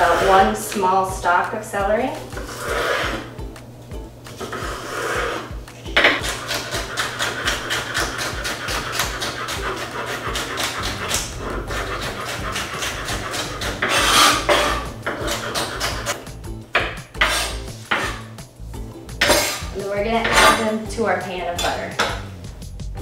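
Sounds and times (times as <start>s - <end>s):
knife chopping on cutting board: 5.9s - 16.2s, 16.8s - 18.3s.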